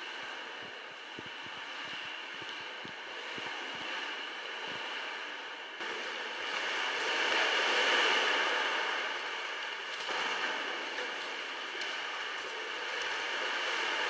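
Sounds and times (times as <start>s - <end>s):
sea water washing into cave: 5.8s - 14.0s.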